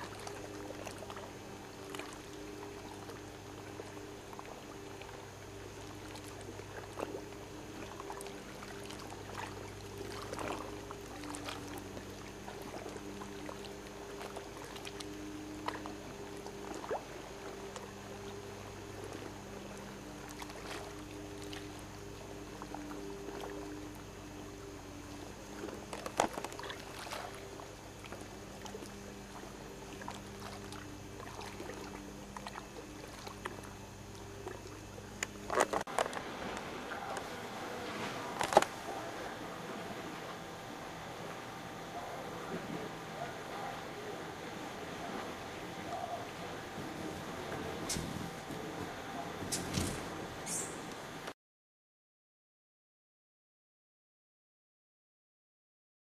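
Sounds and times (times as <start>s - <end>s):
low motor hum: 0.0s - 51.4s.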